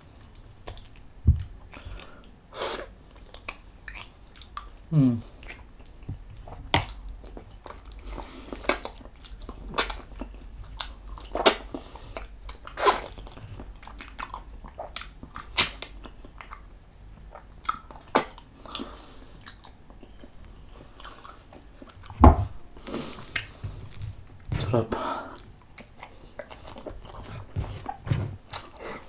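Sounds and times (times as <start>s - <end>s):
wet chewing and lip smacks: 0.2s - 4.8s, 5.4s - 22.2s, 23.2s - 24.7s, 25.3s - 29.0s
heavy thump: 22.2s - 22.6s.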